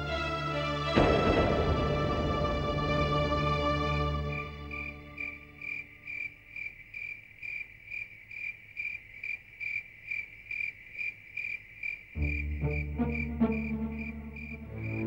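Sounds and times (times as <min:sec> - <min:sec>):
cricket chirping: 0:03.0 - 0:15.0.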